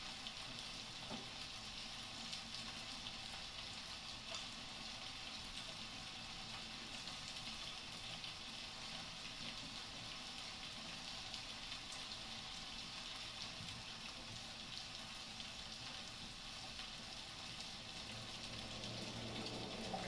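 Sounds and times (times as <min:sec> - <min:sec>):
crackling static hiss: 0:00.0 - 0:20.0.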